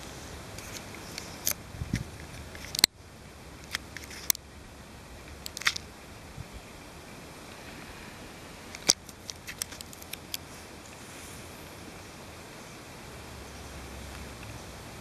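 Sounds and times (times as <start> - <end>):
faint steady hiss: 0.0 - 15.0
sharp camera handling clicks: 5.4 - 5.8.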